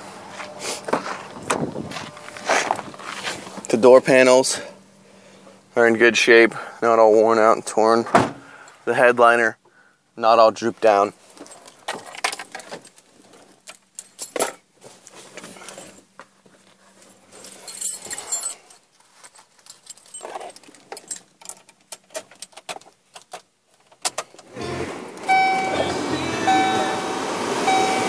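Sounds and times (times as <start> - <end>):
keys jingling: 11.4 - 14.6, 17.3 - 24.3.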